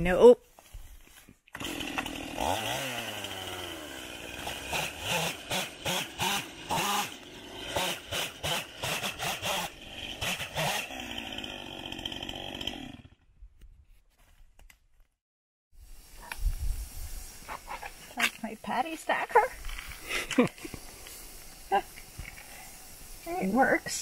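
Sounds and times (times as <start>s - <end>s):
chainsaw cutting log: 1.5s - 13.3s.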